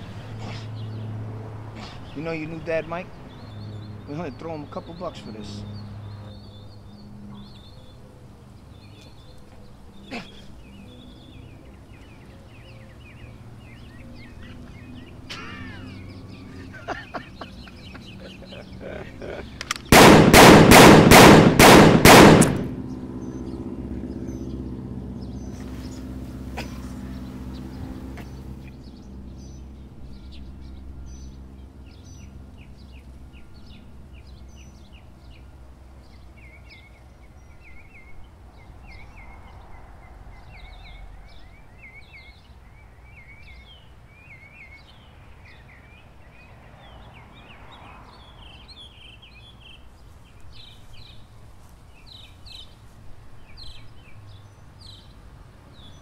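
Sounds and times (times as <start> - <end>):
small birds chirping: 0.0 - 20.0, 22.6 - 56.0
gunshots: 19.7 - 22.8.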